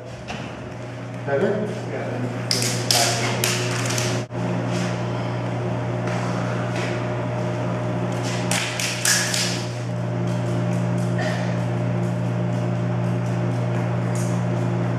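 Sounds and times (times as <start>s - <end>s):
vending machine humming: 0.0s - 14.9s
juggling rings being caught: 8.5s - 9.7s.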